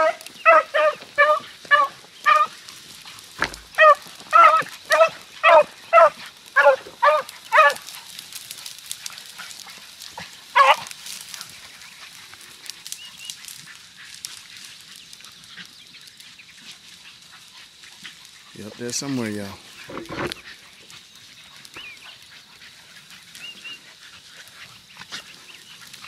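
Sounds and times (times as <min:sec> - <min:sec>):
beagle baying: 0:00.0 - 0:02.6, 0:03.7 - 0:07.9, 0:10.5 - 0:10.9.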